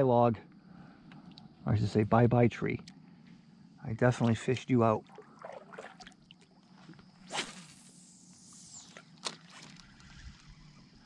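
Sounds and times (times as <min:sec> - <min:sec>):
water dripping from paddle: 0:05.0 - 0:06.5
fishing line hissing off reel: 0:07.1 - 0:11.0
fishing rod cast swish: 0:07.2 - 0:09.9.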